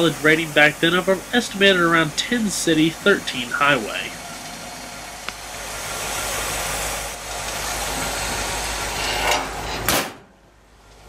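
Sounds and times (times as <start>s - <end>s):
steady hissing: 0.0s - 9.9s
car hood slamming shut: 9.9s - 10.3s.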